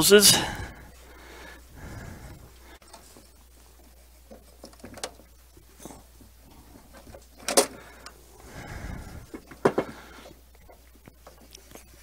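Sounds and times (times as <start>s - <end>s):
hoses and fittings knocking: 9.0s - 11.5s.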